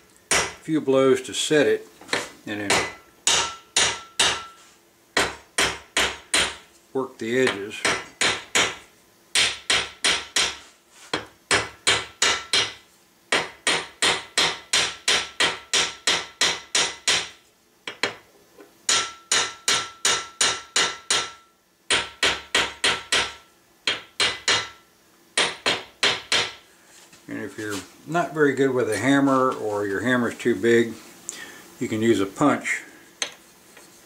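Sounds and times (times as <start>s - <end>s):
hammer striking metal nail: 2.7s - 4.6s, 5.2s - 6.6s, 7.5s - 10.6s, 11.2s - 18.2s, 18.9s - 24.8s, 25.4s - 26.6s.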